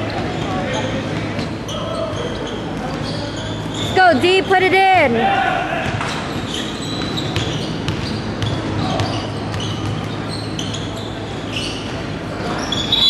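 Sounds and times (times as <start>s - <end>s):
large hall noise: 0.0s - 13.0s
basketball bouncing on wooden floor: 5.8s - 10.2s.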